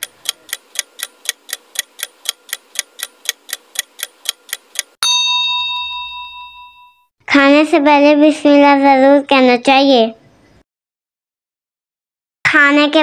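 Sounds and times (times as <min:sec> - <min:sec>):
clock ticking: 0:00.0 - 0:05.0
bell ding: 0:05.0 - 0:07.1.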